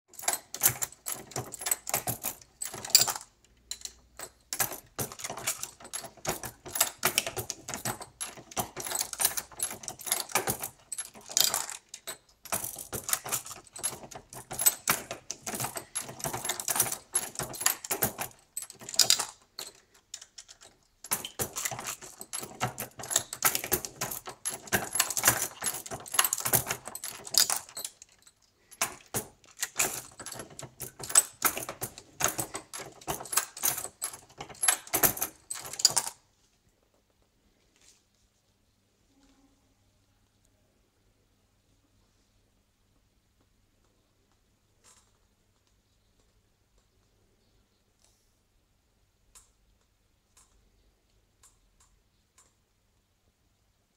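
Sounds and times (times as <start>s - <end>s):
brass cases clinking: 0.1s - 36.2s
reloading press clacking: 0.2s - 36.2s.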